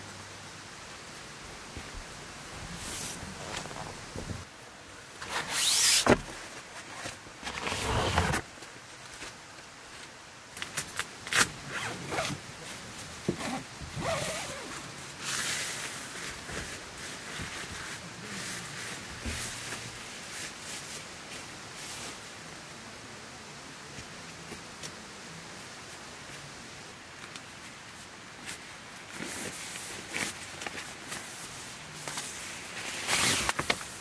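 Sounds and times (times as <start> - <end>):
rustling: 0.9 - 4.5, 5.2 - 22.4, 27.1 - 34.0
zipper pulled: 5.2 - 6.2, 7.5 - 8.4, 11.3 - 12.4, 13.4 - 14.8, 33.0 - 33.7.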